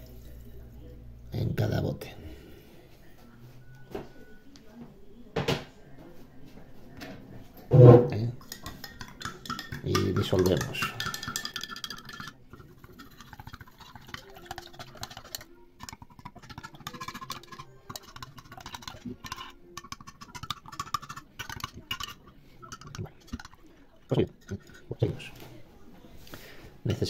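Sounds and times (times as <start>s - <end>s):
salt grains scraping on glass: 8.6s - 25.3s.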